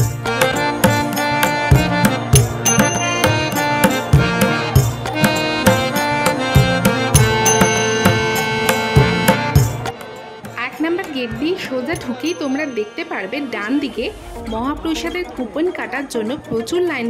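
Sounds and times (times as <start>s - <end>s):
steady drum beat: 0.0s - 9.9s
sustained melodic instrument lines: 0.2s - 16.3s.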